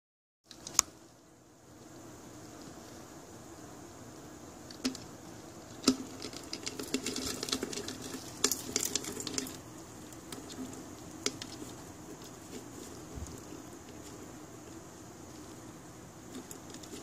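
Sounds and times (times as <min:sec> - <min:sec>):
insect clicking and rustling in plastic: 0:00.5 - 0:00.9, 0:04.6 - 0:17.0.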